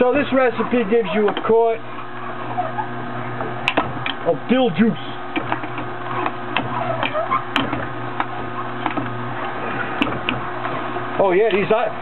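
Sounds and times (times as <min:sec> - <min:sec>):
juicer motor humming: 0:00.0 - 0:12.0
auger crushing produce with clicks: 0:01.2 - 0:04.3, 0:05.3 - 0:11.7.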